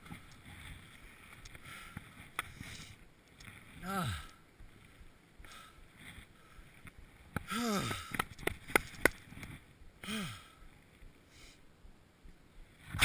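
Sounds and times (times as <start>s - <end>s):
person sighing: 3.8s - 4.4s, 7.5s - 8.2s, 10.0s - 10.6s.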